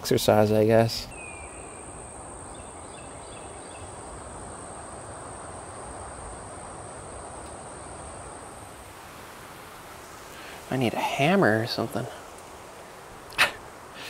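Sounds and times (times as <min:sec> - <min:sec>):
faint chirps: 0:00.0 - 0:06.5
insects trilling: 0:00.0 - 0:14.0
soft outdoor hiss: 0:00.0 - 0:14.0.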